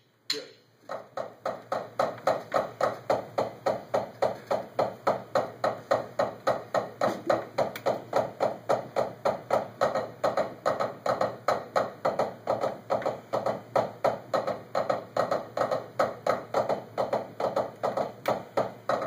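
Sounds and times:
drumsticks on practice pads: 0.3s - 19.0s.

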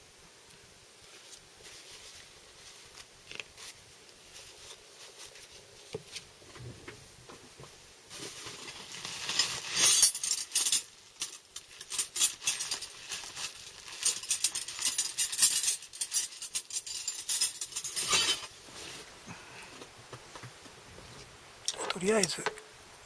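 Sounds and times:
metal hand tools clinking: 9.4s - 18.5s.

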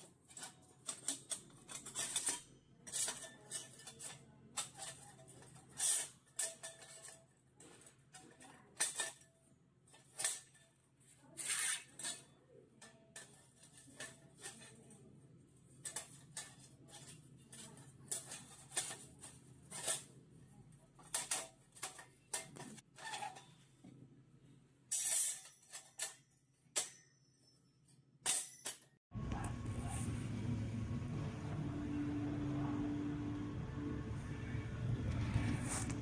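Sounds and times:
steel plates clinking and scraping: 0.0s - 9.3s, 15.8s - 20.2s, 24.9s - 26.2s.

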